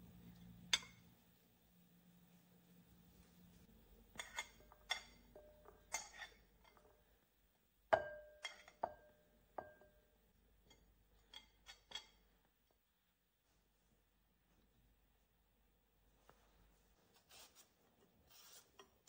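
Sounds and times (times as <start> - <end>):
fork scraping ceramic plate: 4.2 - 6.8.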